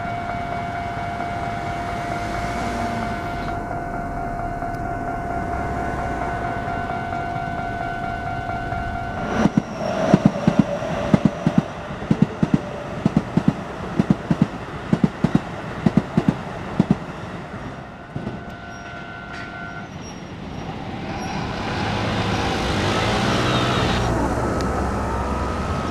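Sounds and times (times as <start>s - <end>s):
crossing warning signal two-note tone: 0.0s - 12.9s, 17.9s - 24.1s
road vehicle engine revving: 1.8s - 13.4s, 21.4s - 25.9s
train wheels clacking over rail joints: 9.2s - 19.7s.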